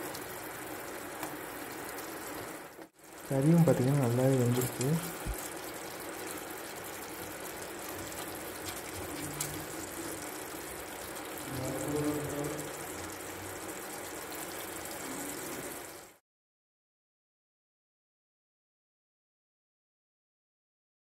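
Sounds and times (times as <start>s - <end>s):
curry hissing in a pot: 0.0s - 16.2s.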